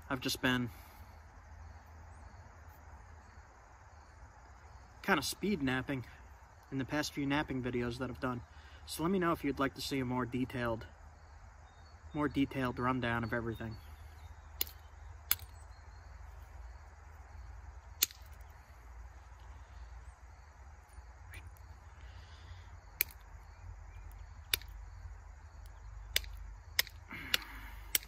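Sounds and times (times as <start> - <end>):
flint flakes clicking: 14.5 - 15.6, 17.9 - 18.7, 20.9 - 28.0.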